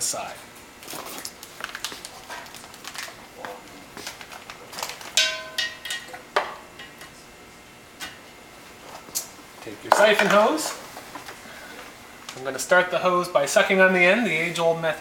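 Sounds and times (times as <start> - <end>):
plastic bag crinkling: 0.8 - 5.2.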